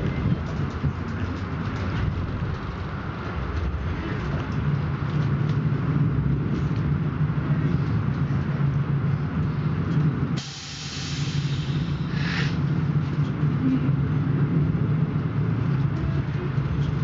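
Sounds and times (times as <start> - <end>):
train running hum and rumble: 0.0 - 17.0
sharp hiss: 10.4 - 12.6.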